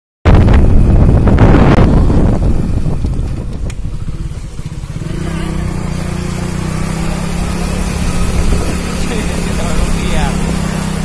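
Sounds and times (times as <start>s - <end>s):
motorcycle engine putter: 2.8s - 6.1s.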